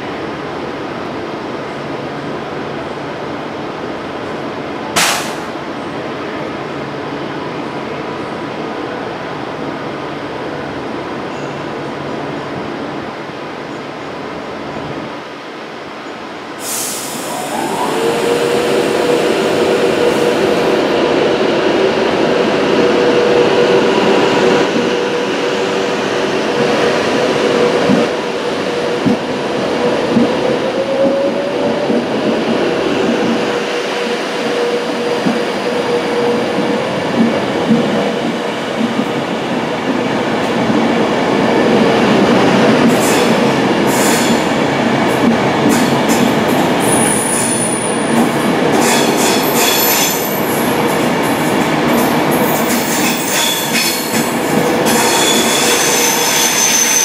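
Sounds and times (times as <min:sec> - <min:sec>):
electric train whine: 0:16.8 - 0:40.0
wheels rumbling on rail: 0:17.0 - 0:57.0.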